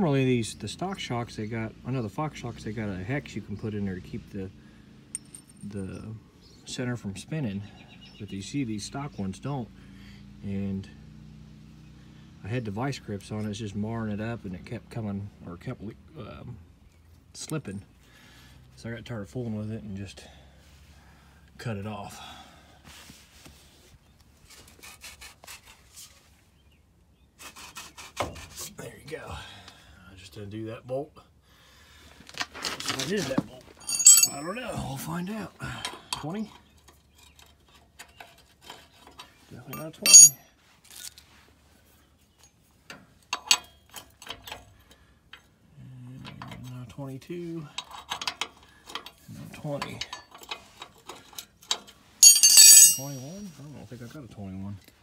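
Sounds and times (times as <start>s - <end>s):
metal wrenches clicking: 33.8s - 34.6s, 36.8s - 41.0s, 47.8s - 49.2s, 49.8s - 53.4s.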